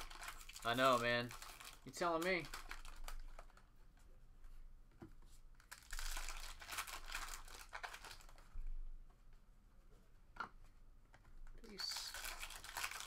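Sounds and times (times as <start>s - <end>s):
foil wrappers crinkling: 0.0s - 3.6s, 5.6s - 8.5s, 11.7s - 13.0s.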